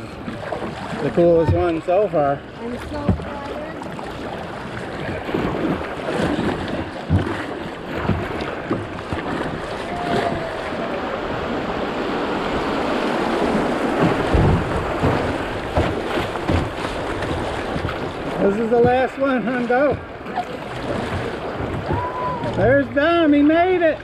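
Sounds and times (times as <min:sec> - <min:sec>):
wind on microphone: 0:04.9 - 0:19.0
low thumps: 0:05.1 - 0:20.2.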